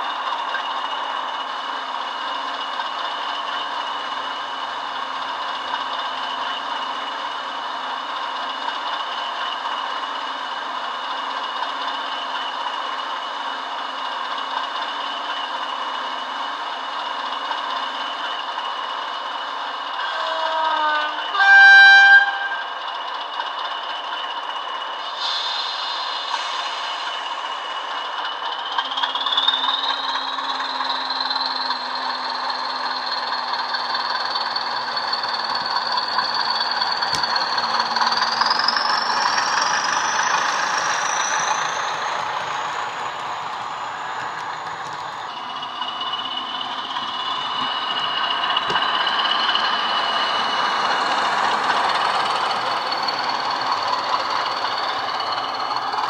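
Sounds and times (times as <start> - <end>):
diesel engine with turbo whistle: 19.4 - 22.9, 25.0 - 56.0
diesel locomotive horn blast: 20.0 - 22.8.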